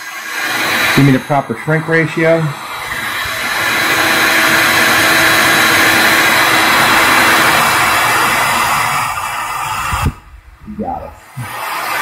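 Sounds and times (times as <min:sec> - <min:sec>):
heat gun fan whoosh: 0:00.0 - 0:10.6, 0:11.2 - 0:12.0
faint steady hum: 0:02.5 - 0:11.5.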